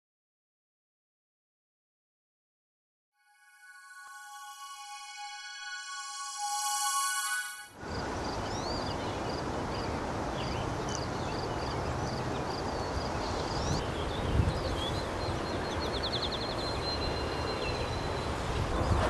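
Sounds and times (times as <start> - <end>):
thin high steady note: 3.2 - 8.0
wind noise: 12.1 - 19.0.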